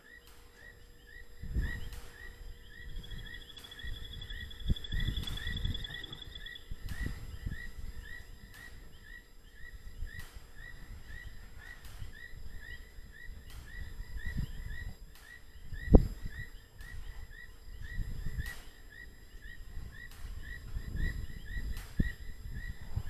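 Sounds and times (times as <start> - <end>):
chorus of short chirps: 0.0 - 12.6.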